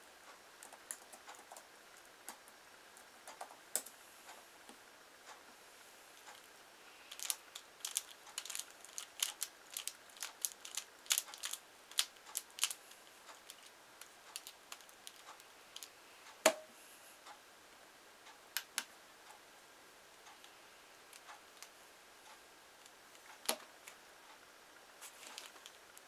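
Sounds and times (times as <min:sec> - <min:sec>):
puzzle clicking as turned: 0:07.1 - 0:15.2.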